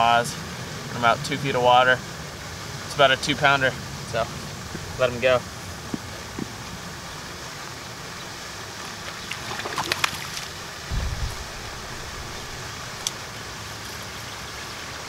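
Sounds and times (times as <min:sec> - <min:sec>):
water splashing: 0:08.9 - 0:13.9
wind noise: 0:10.9 - 0:13.1
wind rumble on microphone: 0:10.9 - 0:13.1.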